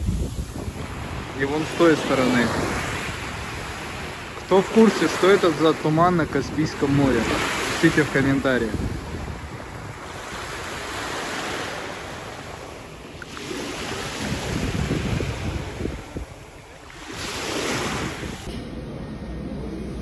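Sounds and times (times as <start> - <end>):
wind on microphone: 0.0 - 4.4, 8.6 - 18.5
surf washing onto shore: 0.0 - 18.5.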